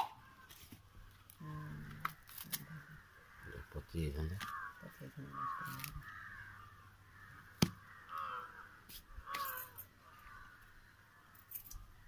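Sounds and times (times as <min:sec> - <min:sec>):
crows cawing: 0:00.0 - 0:12.0.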